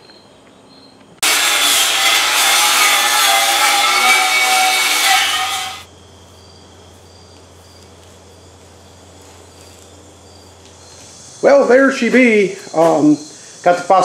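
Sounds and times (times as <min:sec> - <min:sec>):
power tool scraping steel: 0:01.2 - 0:05.9
crickets chirping: 0:05.8 - 0:14.0.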